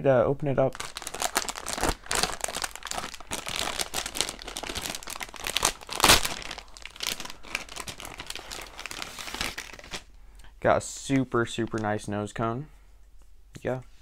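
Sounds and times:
plastic packaging crinkling: 0:00.7 - 0:10.1.

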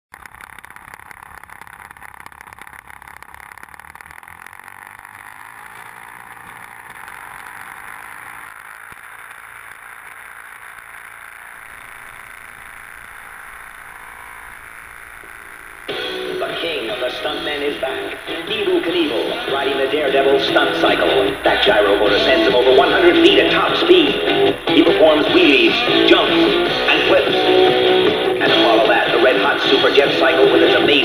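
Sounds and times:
model plane engine running: 0:00.1 - 0:31.0.

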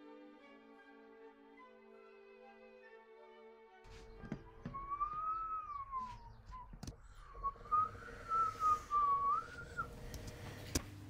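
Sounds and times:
person whistling bird call: 0:04.5 - 0:10.0.

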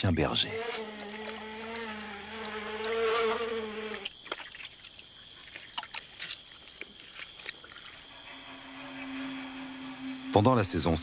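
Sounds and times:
insect buzzing: 0:00.0 - 0:11.0
thin high hum: 0:08.0 - 0:11.0.

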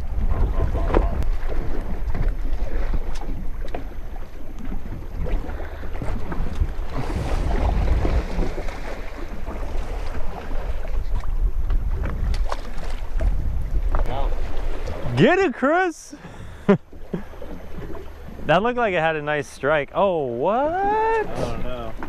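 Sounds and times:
wind buffeting microphone: 0:00.0 - 0:15.2
water splash: 0:00.0 - 0:15.6
water sloshing against boat hull: 0:00.0 - 0:22.0.

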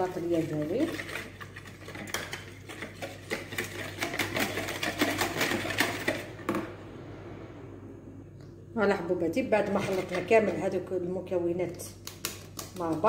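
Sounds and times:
whisk beating batter in bowl: 0:00.0 - 0:06.3, 0:09.6 - 0:10.7.

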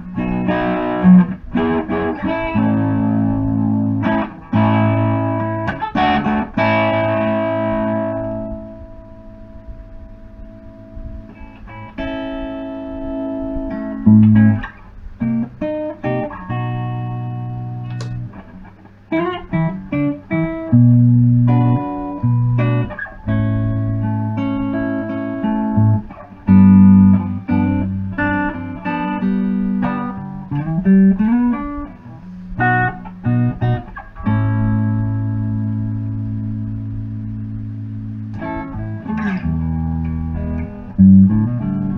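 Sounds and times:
electric guitar notes and chords: 0:00.0 - 0:41.9
guitar slide: 0:00.0 - 0:41.9.

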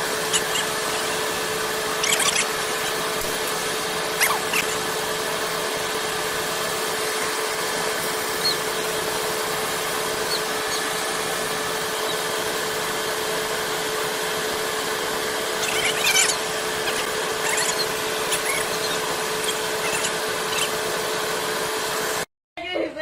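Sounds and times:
high chirps: 0:00.0 - 0:05.0, 0:08.2 - 0:09.0, 0:15.6 - 0:20.8.

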